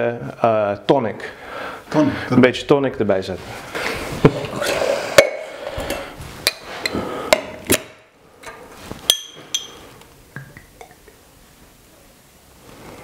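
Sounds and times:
bar tools and glass clinking: 9.1 - 9.8.

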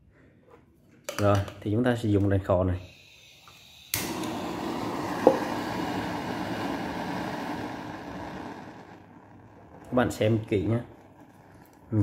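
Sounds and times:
blow torch hissing: 2.8 - 12.0.

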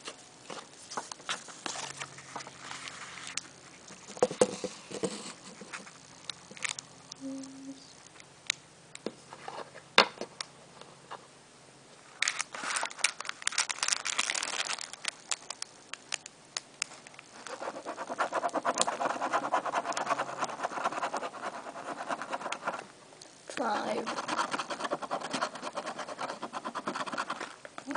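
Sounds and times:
coin scratching lottery ticket: 17.5 - 22.8, 23.6 - 27.5.

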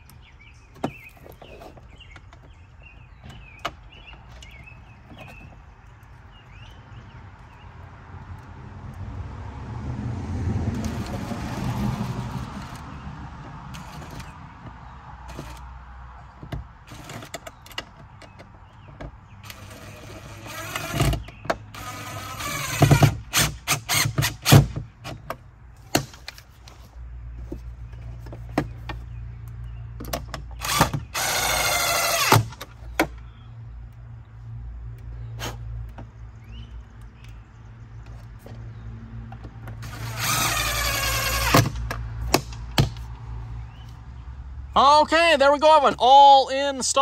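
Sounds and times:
cordless drill motor whining: 30.6 - 32.4, 39.8 - 41.7.

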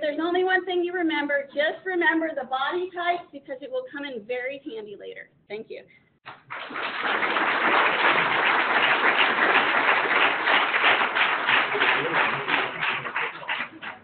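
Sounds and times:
audience applauding: 6.3 - 14.0.

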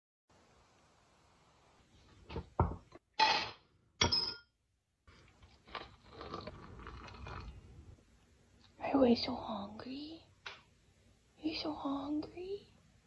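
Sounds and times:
water pouring from kettle: 5.9 - 7.6.

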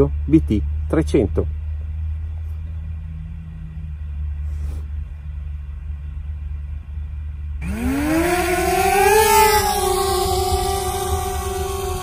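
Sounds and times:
drone motors whining: 7.6 - 12.0.

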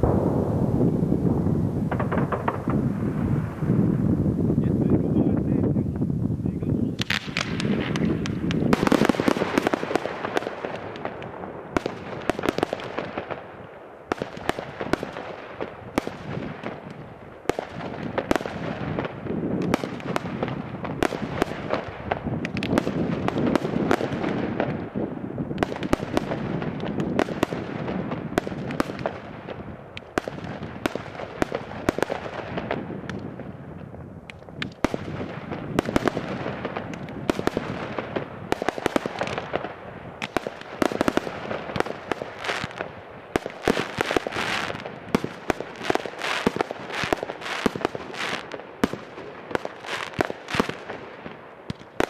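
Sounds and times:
firework crackle: 0.0 - 52.0
firework launches and bursts: 7.0 - 13.4.

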